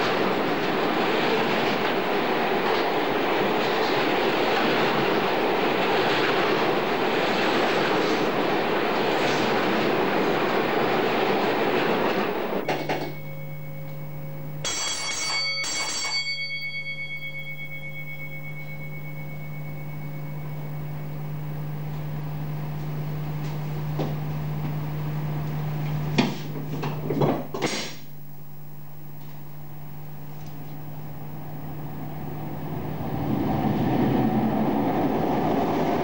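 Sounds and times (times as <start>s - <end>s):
freight train wheels clattering: 0.0s - 13.4s
low hum: 11.4s - 14.7s, 16.3s - 26.2s
short ringing tones: 12.6s - 22.0s.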